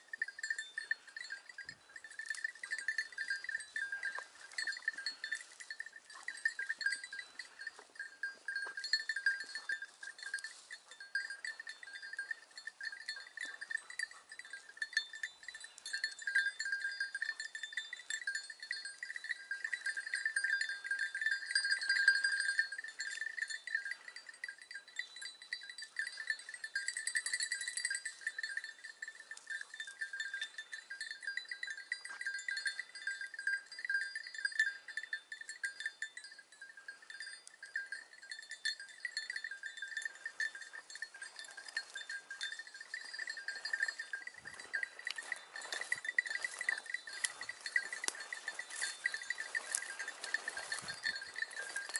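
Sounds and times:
dog collar bell jingling: 0.0s - 51.9s.

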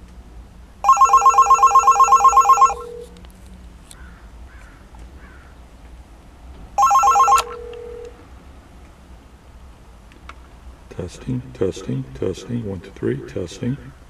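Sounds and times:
telephone ringing with warble: 0.8s - 3.1s, 6.8s - 8.1s.

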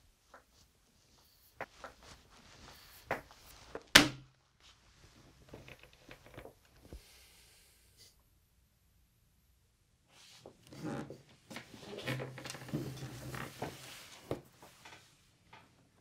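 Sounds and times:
rustling: 0.1s - 7.1s.

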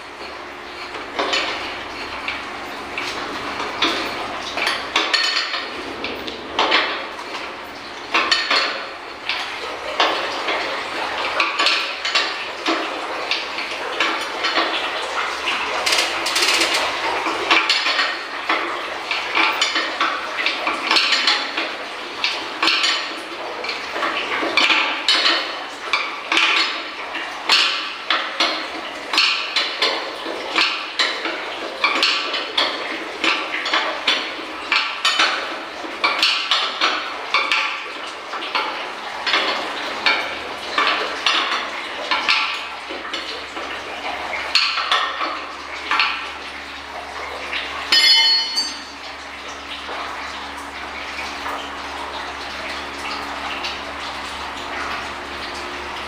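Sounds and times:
hoist chain rattling and clinking: 47.9s - 49.0s.

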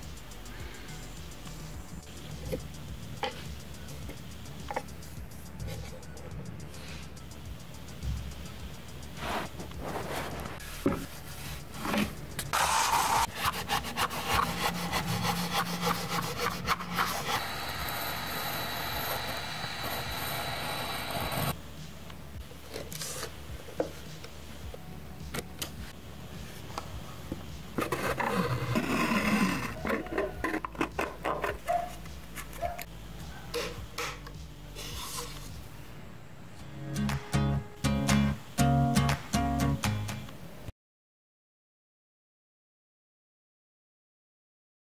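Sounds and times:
rubbing and scraping: 9.2s - 17.9s, 27.8s - 32.7s.

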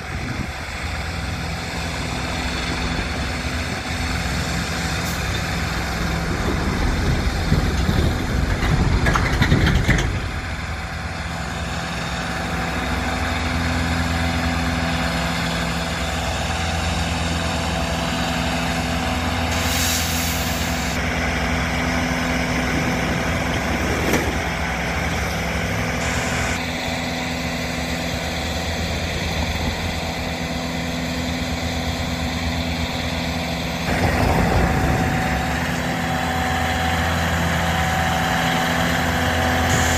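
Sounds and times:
diesel engines humming: 0.0s - 39.9s
brief hiss: 19.5s - 21.0s.

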